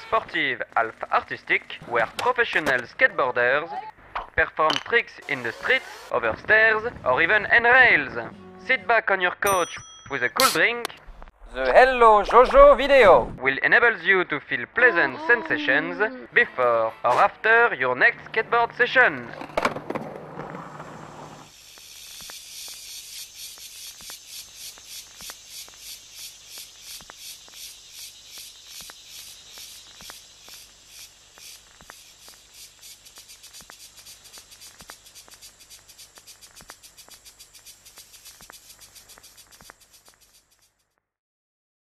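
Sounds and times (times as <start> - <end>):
rhythmic rasping hiss: 21.5 - 40.7
faint regular ticks: 21.5 - 41.0.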